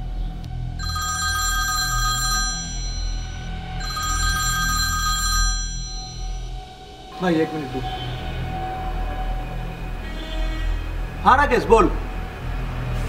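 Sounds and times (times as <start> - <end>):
phone ringtone: 0.8 - 6.8.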